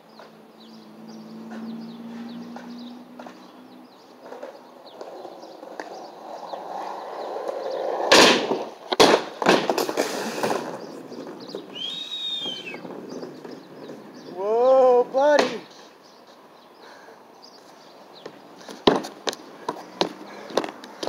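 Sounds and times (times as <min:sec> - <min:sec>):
skateboard wheels rolling on concrete: 0:00.0 - 0:21.0
skateboard clacking: 0:04.0 - 0:14.1, 0:18.2 - 0:21.0.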